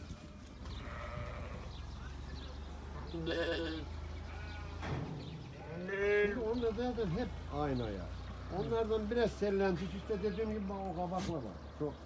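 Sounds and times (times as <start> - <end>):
sheep bleating: 0.7 - 1.9, 3.1 - 4.8, 9.7 - 10.7.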